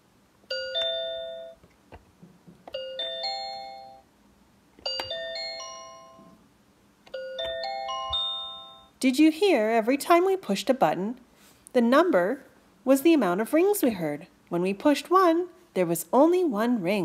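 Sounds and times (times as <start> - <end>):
electronic bell chimes: 0.5 - 1.6, 2.8 - 4.0, 4.9 - 6.4, 7.2 - 9.0.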